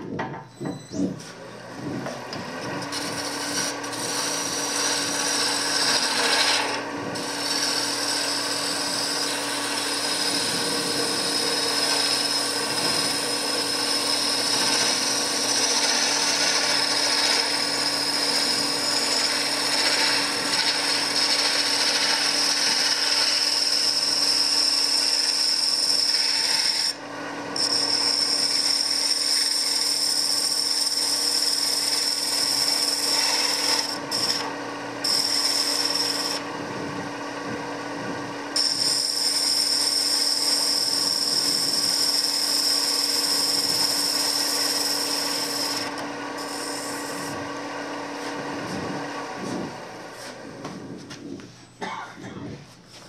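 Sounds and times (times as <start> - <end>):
wood lathe humming: 1.2 - 51.2
gouge shavings hissing: 2.9 - 8.5, 9.1 - 18.3.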